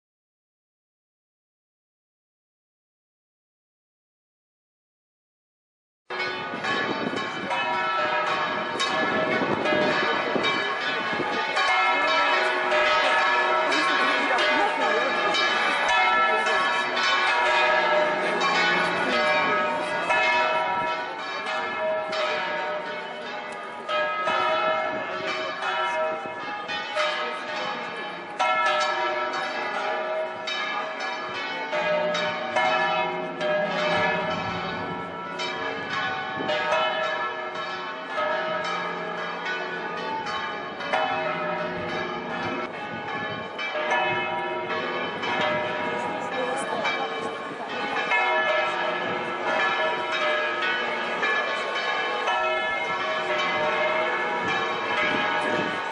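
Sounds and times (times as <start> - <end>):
church bells pealing: 6.1 - 55.9.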